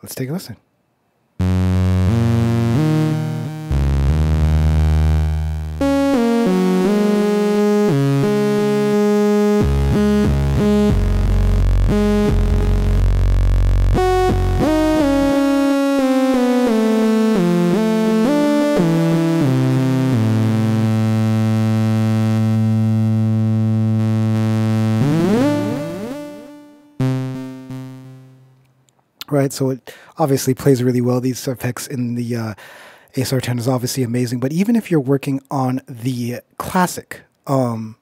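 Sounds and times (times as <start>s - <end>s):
sawtooth synth with delay: 1.4s - 28.4s.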